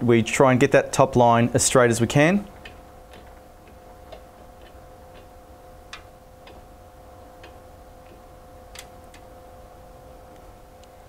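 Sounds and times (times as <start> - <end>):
steady two-tone hum: 0.0 - 11.0
adjustment dial clicking: 5.9 - 6.7, 7.4 - 9.3.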